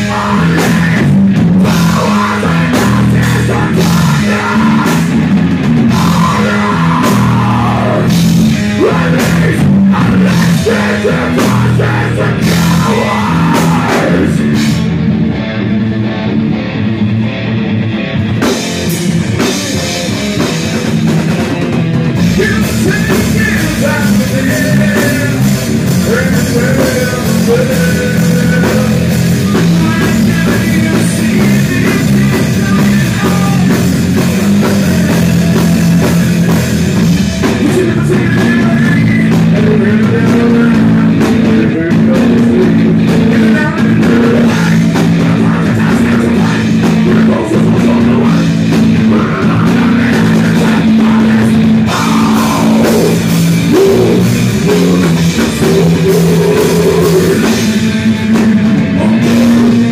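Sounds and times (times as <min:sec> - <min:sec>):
person singing: 0:00.0 - 0:14.9, 0:22.2 - 0:59.9
heavy rock band playing: 0:00.0 - 0:59.9.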